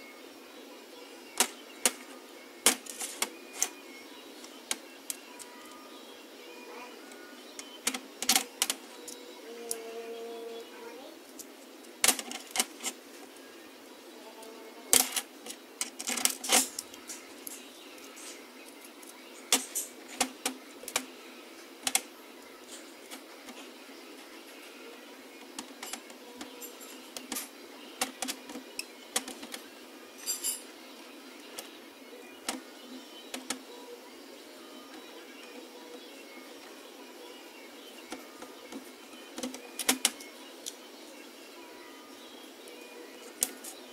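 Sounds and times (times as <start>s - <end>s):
metal tool parts clicking: 15.0s - 17.6s.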